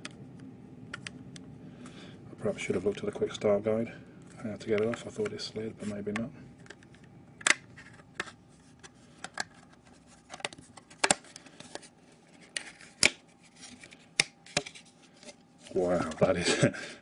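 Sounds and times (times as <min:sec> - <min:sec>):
plastic cover clicks and snaps: 0:06.1 - 0:11.8.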